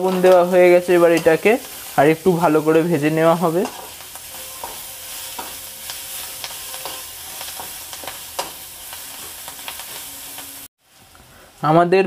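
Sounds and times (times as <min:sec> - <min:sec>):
vegetables sizzling in hot oil: 0:00.0 - 0:11.9
metal spatula scraping pan: 0:03.4 - 0:10.4.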